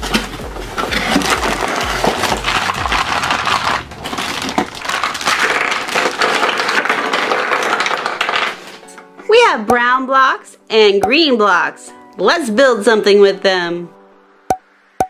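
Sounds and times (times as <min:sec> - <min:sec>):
plastic blocks clattering: 0:00.0 - 0:09.1
background music: 0:00.0 - 0:15.0.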